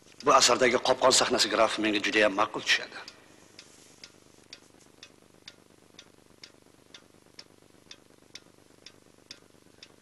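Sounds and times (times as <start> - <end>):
clock-like ticking: 4.0 - 10.0.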